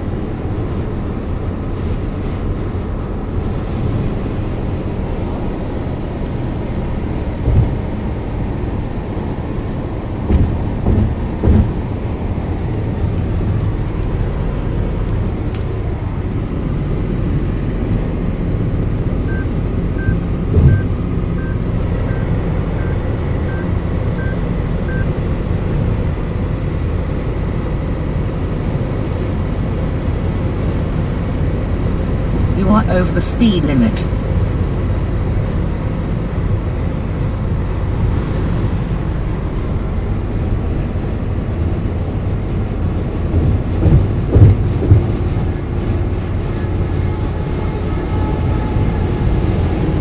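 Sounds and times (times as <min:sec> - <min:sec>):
car road and engine noise: 0:00.0 - 0:50.0
dull thumps: 0:10.2 - 0:11.8
short warning beeps: 0:19.3 - 0:25.1.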